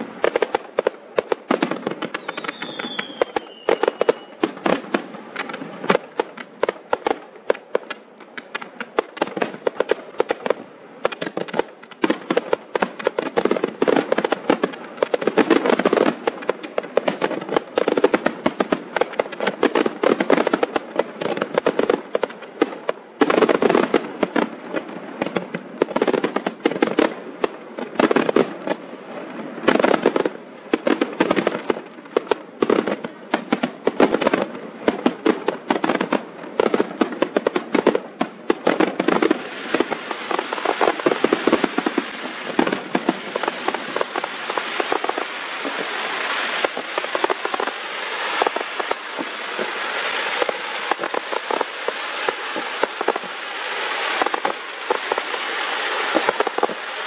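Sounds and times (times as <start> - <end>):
fireworks bangs and crackling: 0.0 - 57.0.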